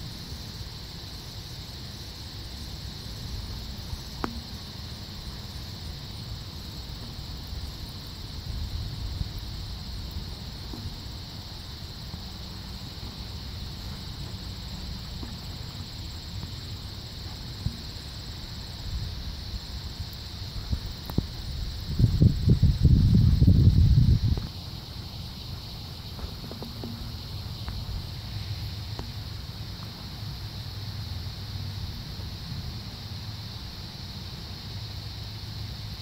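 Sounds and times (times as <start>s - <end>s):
insects chirring: 0.0s - 36.0s
low rumble on microphone: 6.1s - 24.5s.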